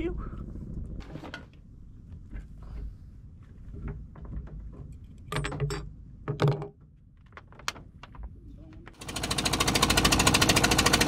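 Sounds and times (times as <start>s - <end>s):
low rumble: 0.0s - 4.2s
knocks and clunks on boat deck: 1.0s - 9.0s.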